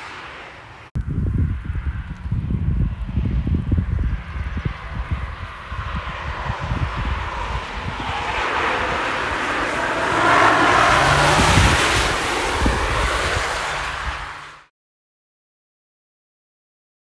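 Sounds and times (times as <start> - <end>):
wind buffeting microphone: 1.0 - 14.6
car driving past at speed: 4.0 - 14.7.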